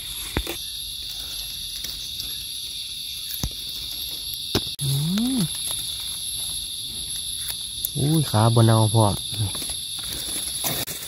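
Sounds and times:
insects droning: 0.0 - 11.0
man humming: 4.8 - 5.6.

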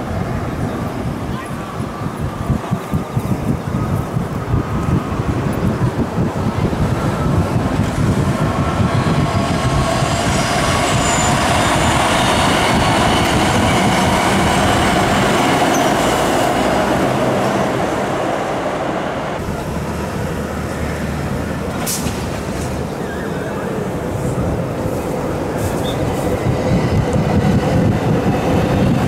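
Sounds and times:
electric train rumbling past: 0.0 - 29.0.

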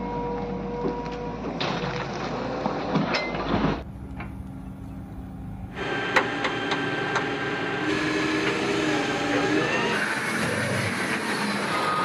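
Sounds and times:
diesel engine running: 0.0 - 12.0
soil and stones dumping: 1.6 - 3.8.

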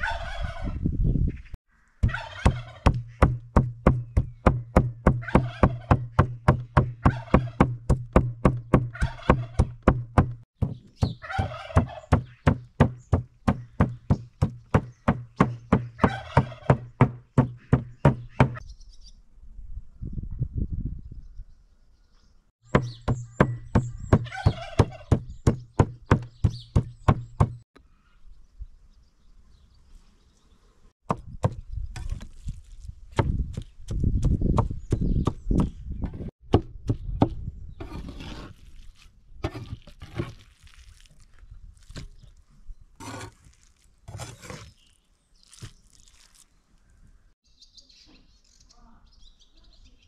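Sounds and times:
birds chirping: 0.0 - 7.6, 10.6 - 19.3, 21.0 - 30.9, 33.6 - 36.3
cleaver chopping meat on board: 2.4 - 11.2
cleaver scraping chopping block: 37.8 - 40.5, 43.0 - 44.8.

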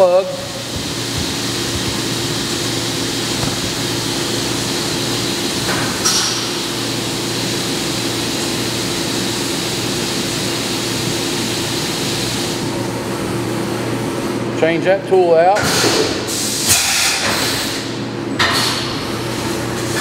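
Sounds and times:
milling machine spindle hum: 0.0 - 7.3
coolant spray hissing: 0.0 - 12.6.

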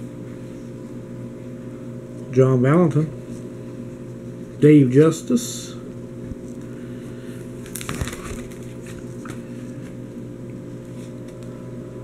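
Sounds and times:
steady low hum: 0.0 - 12.0
plastic binder page rustling: 7.6 - 10.0.

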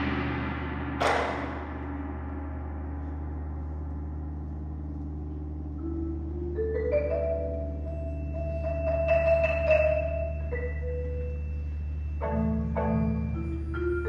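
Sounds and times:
ensemble hit decay: 0.0 - 4.2
gong ringing: 1.0 - 3.4
mallet percussion climbing notes: 3.3 - 14.0.

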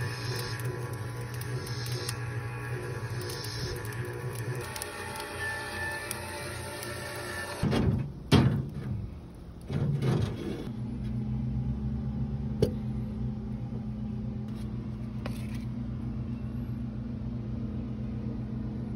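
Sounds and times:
low motor hum: 0.0 - 7.7, 8.9 - 18.9.

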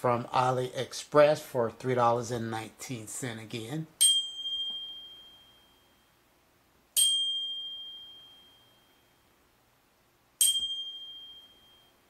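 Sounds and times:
bicycle bell ringing: 4.0 - 6.1, 7.0 - 9.2, 10.4 - 12.0.

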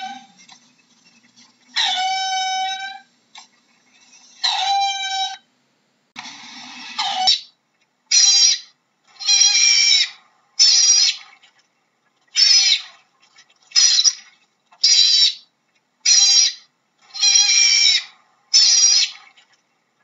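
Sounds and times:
otter high-pitched calls: 1.7 - 3.1, 4.1 - 5.5, 6.7 - 11.2, 12.4 - 12.9, 13.8 - 19.2.

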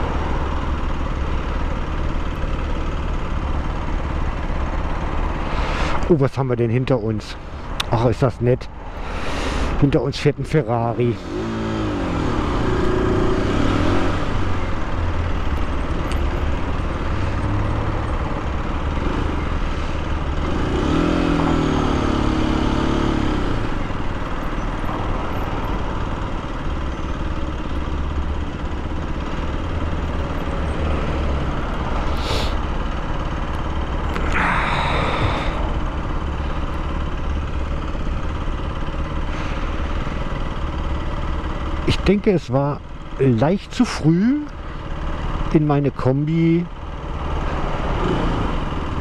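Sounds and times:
motorcycle engine running: 10.7 - 42.0.

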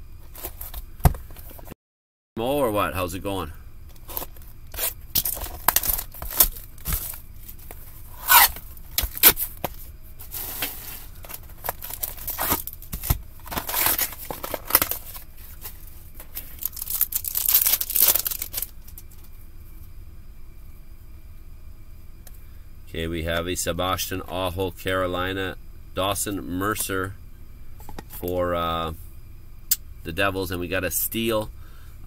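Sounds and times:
card packs tearing and crinkling: 4.0 - 19.1.

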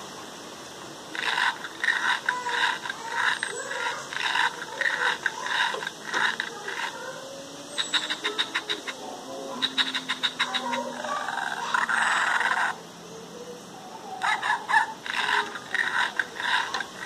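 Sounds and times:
robot speaker scratchy puffs: 1.1 - 7.1, 7.8 - 9.0, 9.6 - 12.8, 14.2 - 17.0.

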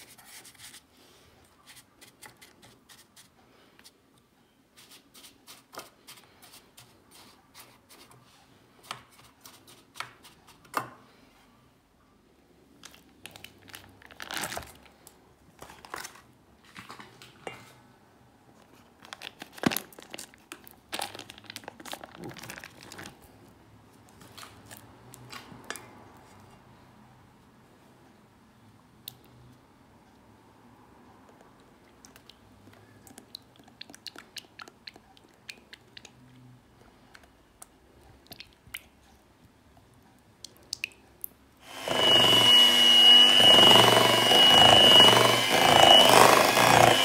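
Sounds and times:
wrappers crinkling and tearing: 13.2 - 14.9, 19.0 - 23.2.

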